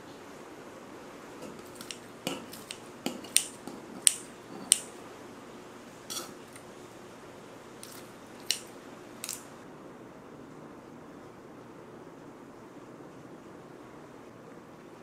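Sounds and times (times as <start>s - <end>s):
scissors snipping: 1.4s - 4.9s, 7.8s - 9.5s.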